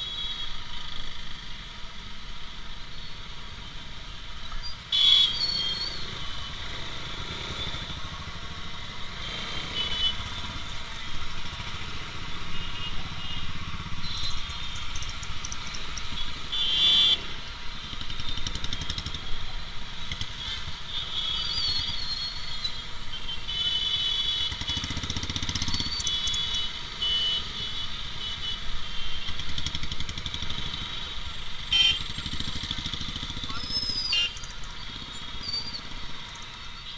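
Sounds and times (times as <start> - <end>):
motorcycle engine running: 24.2 - 26.8, 29.3 - 36.5
vehicle horn toots: 31.7 - 32.1.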